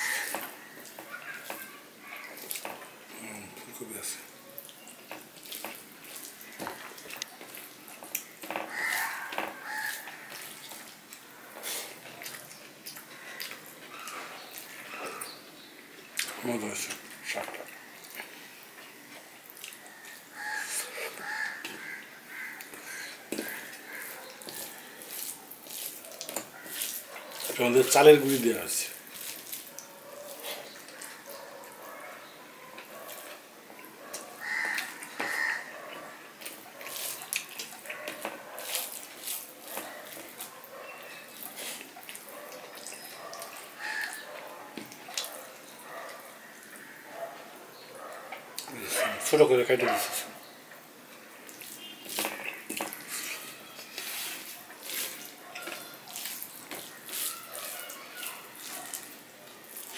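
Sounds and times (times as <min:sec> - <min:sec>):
chewing and mouth clicks: 0:00.3 - 0:02.9, 0:04.6 - 0:15.4, 0:16.1 - 0:20.2, 0:22.6 - 0:27.6, 0:32.8 - 0:46.8, 0:51.4 - 0:59.9
fingers squishing rice on plate: 0:21.0 - 0:27.6, 0:36.4 - 0:40.7, 0:51.4 - 0:59.9
fingers squishing rice: 0:23.4 - 0:28.0.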